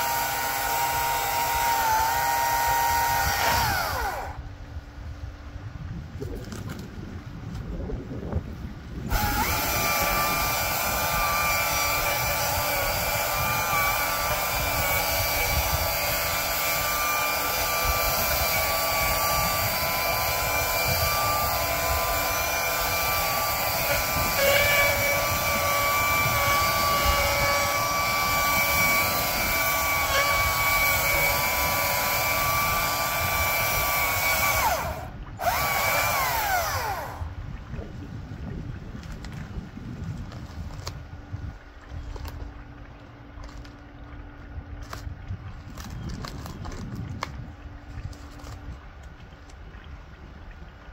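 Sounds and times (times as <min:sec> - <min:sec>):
power tool whining: 0:00.0 - 0:04.5, 0:09.1 - 0:37.4, 0:48.1 - 0:48.7.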